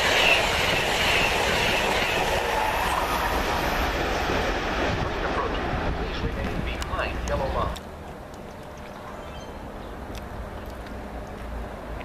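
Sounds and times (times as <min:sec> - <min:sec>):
passenger train passing at speed: 0:00.0 - 0:08.4.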